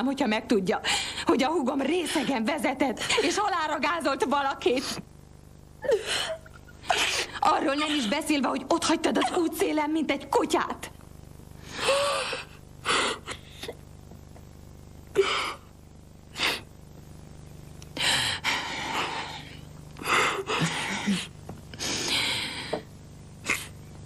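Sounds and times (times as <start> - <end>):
woman sobbing: 5.8 - 8.2, 11.7 - 13.8, 20.1 - 21.3.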